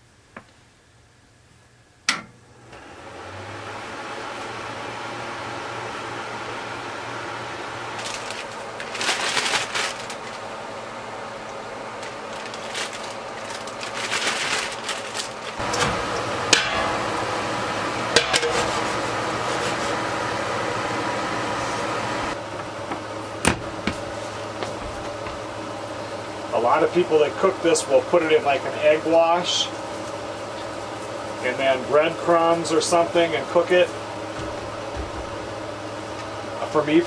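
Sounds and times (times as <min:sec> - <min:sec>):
pan and utensils knocking: 0:15.6 - 0:17.5, 0:18.1 - 0:19.8.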